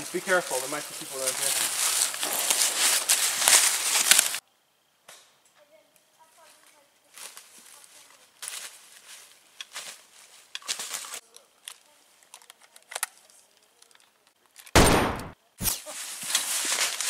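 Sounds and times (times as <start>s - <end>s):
footsteps on dry leaves: 0.0s - 4.4s, 7.1s - 11.2s, 15.9s - 17.0s
rifle gunshots: 14.8s - 15.4s.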